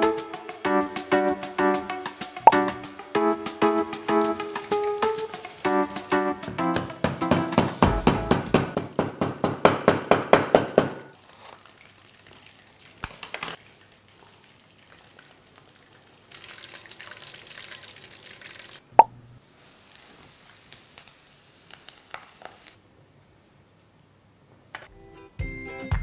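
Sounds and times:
knife chopping on wooden board: 6.8s - 11.0s
hot oil hissing in a wok: 13.8s - 22.8s.

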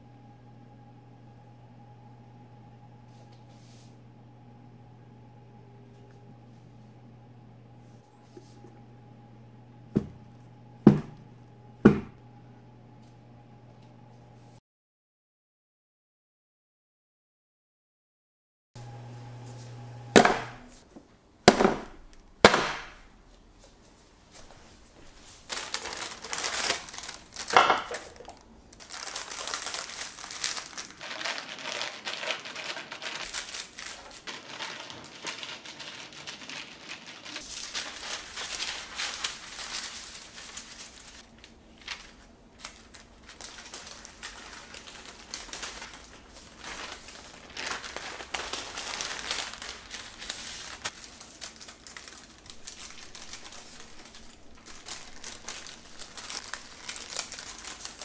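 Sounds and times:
baking parchment rustling: 19.3s - 58.0s.

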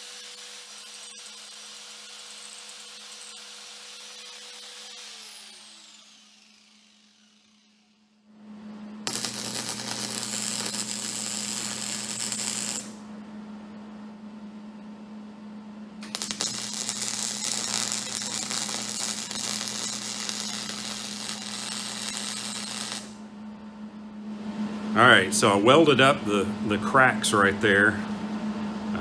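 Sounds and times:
welding arc crackling: 0.0s - 7.7s, 9.0s - 13.0s, 16.0s - 23.2s
steady low hum: 7.0s - 29.0s.

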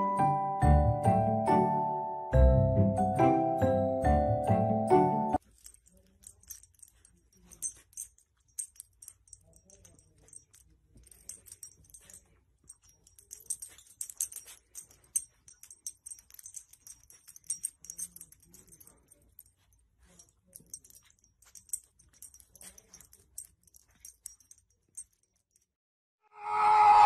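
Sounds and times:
dog collar tags jingling: 5.4s - 25.8s.

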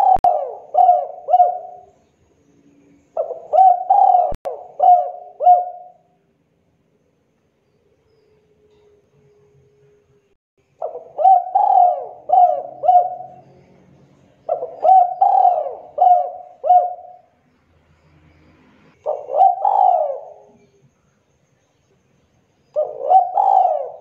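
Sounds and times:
dove cooing: 0.0s - 2.0s, 3.2s - 6.2s, 10.8s - 13.7s, 14.4s - 17.4s, 19.0s - 20.8s, 22.7s - 24.0s.

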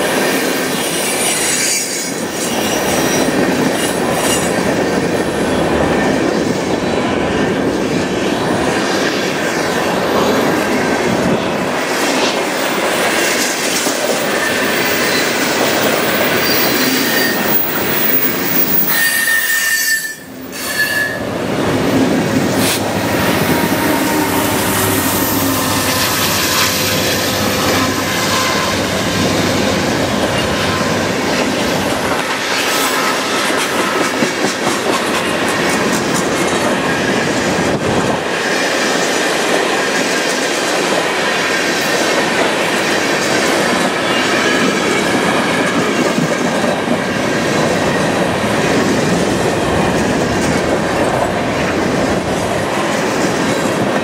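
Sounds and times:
train wheels clattering on rails: 0.0s - 19.2s, 20.2s - 54.0s
high-pitched wheel squeals: 14.3s - 21.3s, 23.1s - 28.9s.

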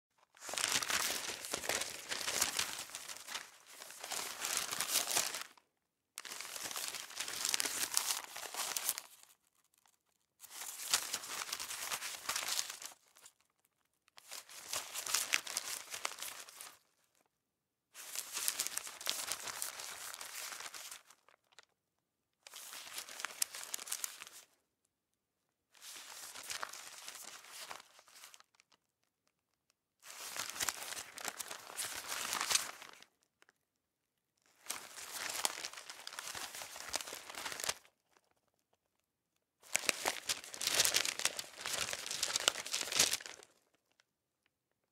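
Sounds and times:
newspaper crumpling: 0.3s - 5.6s, 6.2s - 13.4s, 14.2s - 16.8s, 18.0s - 21.7s, 22.5s - 24.4s, 25.8s - 28.7s, 30.0s - 33.1s, 34.6s - 38.4s, 39.6s - 43.7s.

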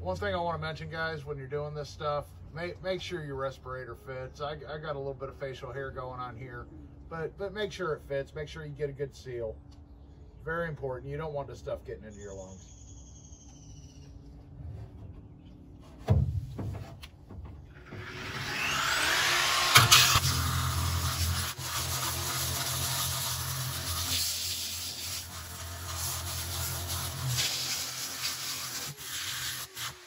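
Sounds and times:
angle grinder sanding: 17.7s - 30.0s.

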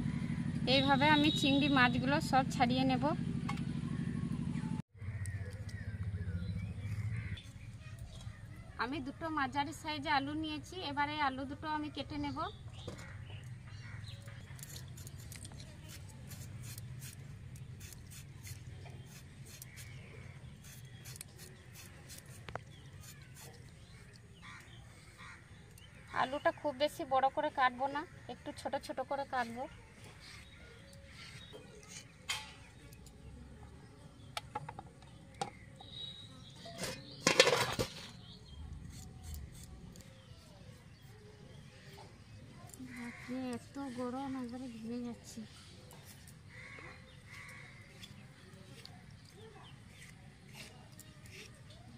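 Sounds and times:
potato scraped on blade: 14.5s - 20.0s, 20.6s - 23.6s, 49.8s - 51.9s
metallic clatter on steel plate: 36.8s - 38.1s.

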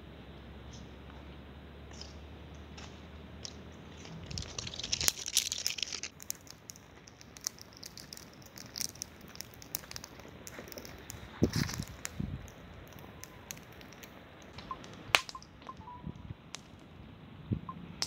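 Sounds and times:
campfire crackling: 2.8s - 17.2s
sharp pops of fire: 6.1s - 15.8s.

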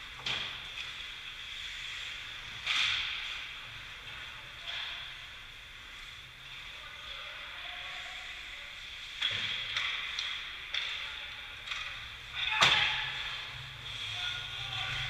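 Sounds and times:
skates scraping ice: 0.6s - 4.3s.

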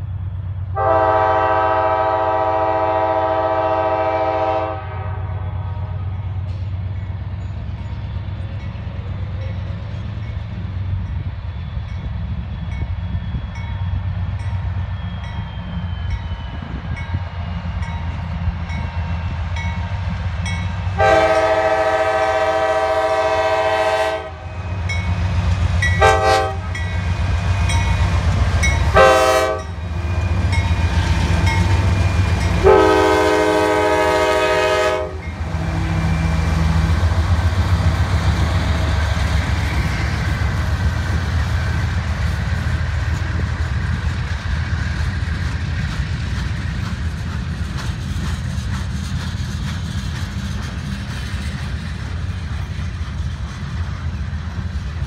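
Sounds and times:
train wheels rolling on rails: 0.0s - 55.0s
locomotive air horn blasts: 0.8s - 6.0s, 21.0s - 24.6s, 26.0s - 26.8s, 28.8s - 29.8s, 32.5s - 36.6s.

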